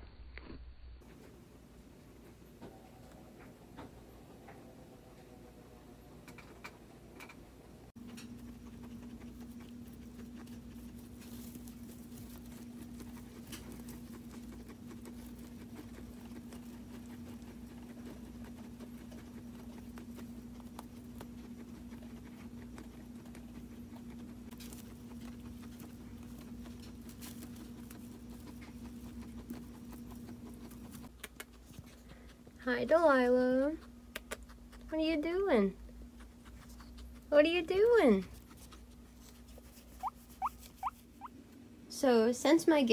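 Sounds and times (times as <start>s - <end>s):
guinea pigs chewing hay: 0.0s - 42.9s
steady low hum: 0.0s - 42.9s
guinea pigs rustling in hay: 0.4s - 2.4s, 7.9s - 33.9s, 35.0s - 42.9s.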